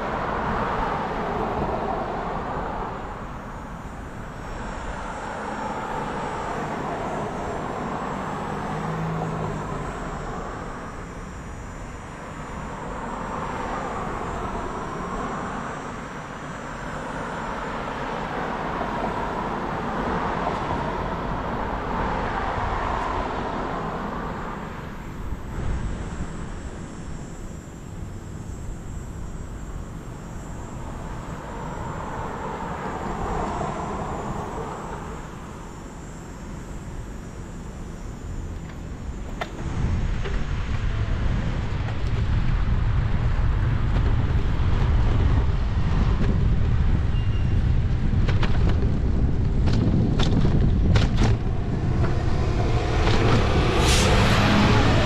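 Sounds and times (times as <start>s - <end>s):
steady traffic rush: 0.0s - 55.0s
vehicles passing: 0.0s - 55.0s.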